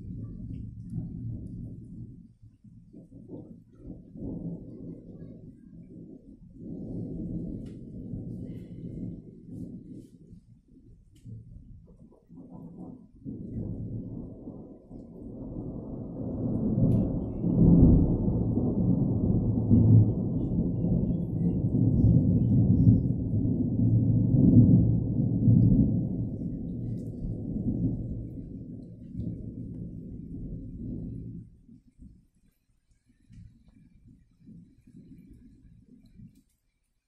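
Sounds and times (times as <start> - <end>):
rolling thunder: 0.0 - 32.4.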